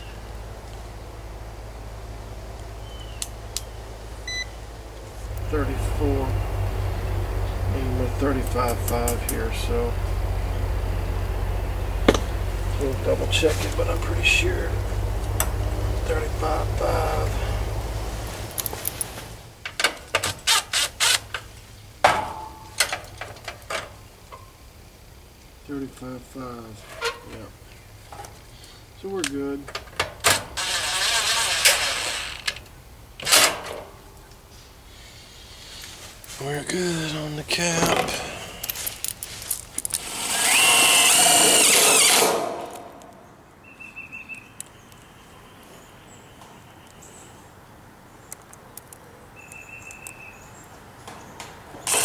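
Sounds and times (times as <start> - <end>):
cordless drill whine: 30.6 - 32.6, 40.0 - 42.9
tools clicking and rattling: 37.8 - 40.1.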